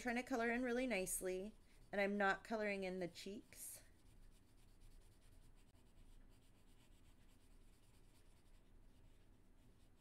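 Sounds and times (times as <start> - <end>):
crayon scratching on paper: 0.1 - 10.0.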